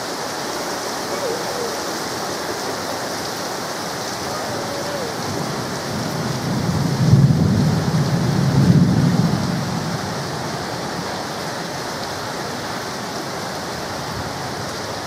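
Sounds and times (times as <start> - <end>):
heavy rain hissing: 0.0 - 15.0
thunder rumbling: 4.2 - 11.6.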